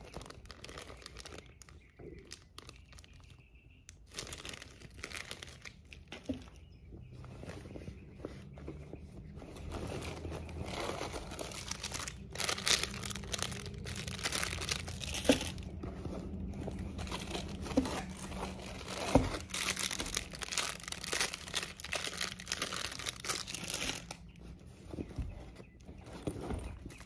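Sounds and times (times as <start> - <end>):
items shifting in bag: 7.2 - 27.0
canvas bag rustling: 9.4 - 24.2, 24.9 - 27.0.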